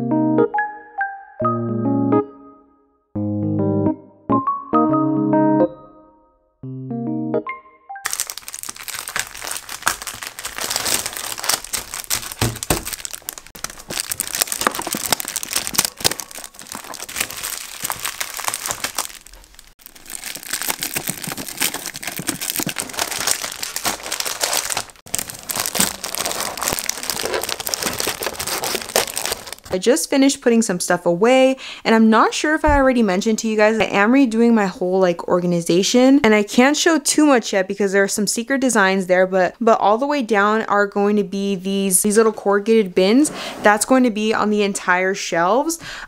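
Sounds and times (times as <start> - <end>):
plastic sleeves crinkling: 8.1 - 29.8.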